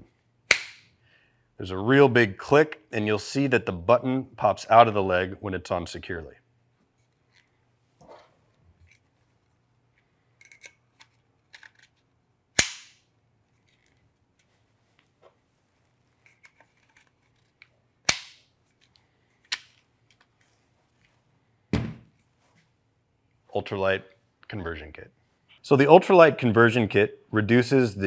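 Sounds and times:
low thump: 21.7 - 22.0.

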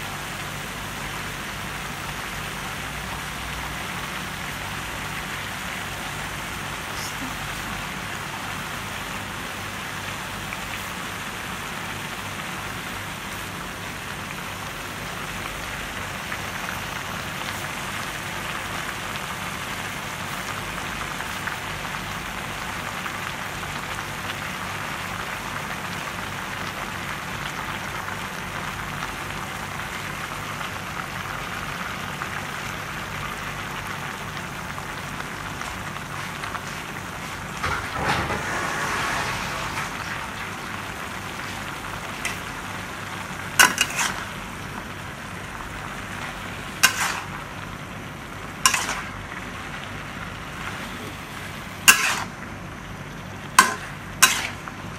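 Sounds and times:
food sizzling in a wok: 0.0 - 54.9
brief burst of noise: 38.0 - 40.0.

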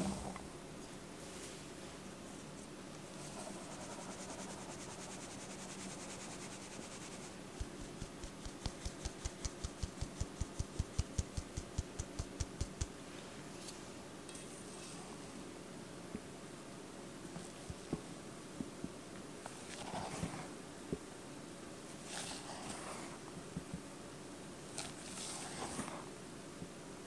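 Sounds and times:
sieve shaking hiss: 3.2 - 12.8.

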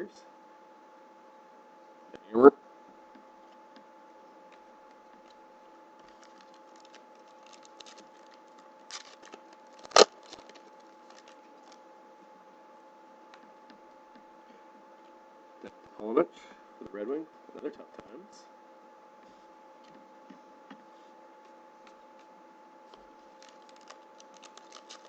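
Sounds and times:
electrical hum: 0.0 - 25.0
cards shuffled and flicked: 6.0 - 11.8, 23.3 - 25.0.

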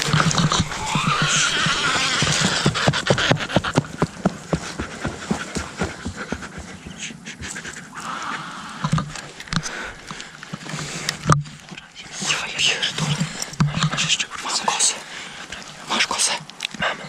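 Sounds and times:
crackles and clicks: 0.0 - 4.2, 7.5 - 16.9
hard rapid breathing: 0.0 - 11.3.

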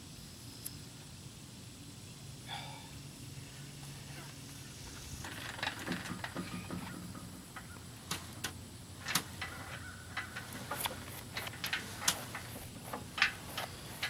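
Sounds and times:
metal boat and trailer rattling: 5.2 - 14.0
sharp clicks and knocks: 5.2 - 14.0.

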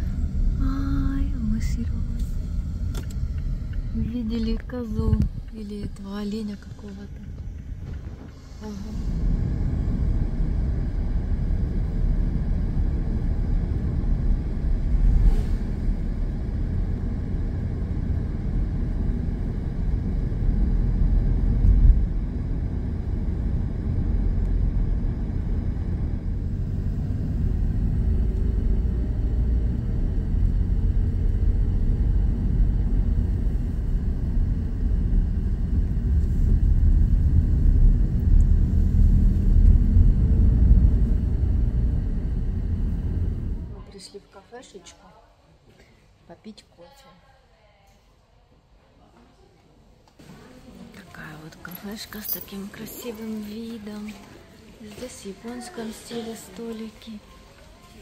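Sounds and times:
car interior road rumble: 0.0 - 43.8.

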